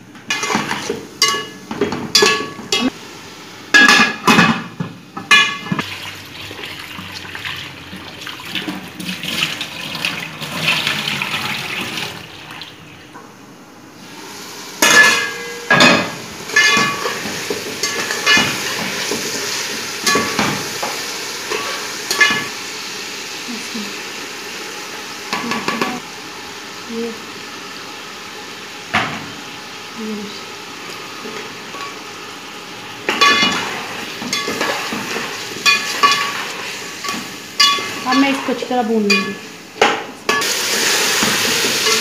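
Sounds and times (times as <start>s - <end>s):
water running at sink: 5.2s - 13.2s, 28.6s - 39.8s, 40.4s - 42.0s.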